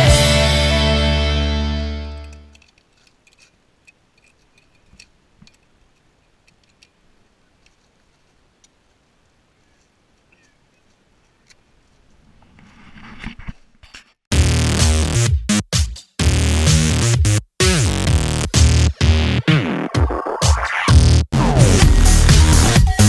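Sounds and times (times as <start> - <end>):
loud music: 0.0 - 2.3, 14.3 - 23.0
small metallic clicks: 2.2 - 7.0.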